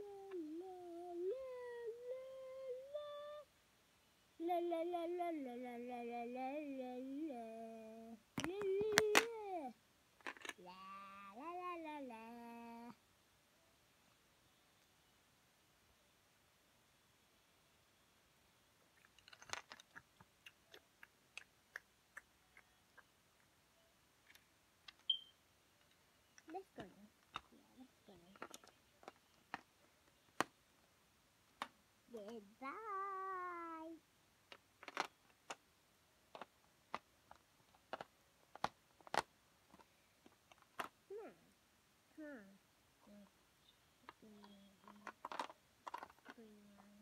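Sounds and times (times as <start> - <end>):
plastic toy bricks clicking: 8.4 - 9.4, 10.2 - 10.6, 19.0 - 20.8, 28.2 - 29.7, 34.5 - 35.6, 36.3 - 41.0, 44.1 - 46.9.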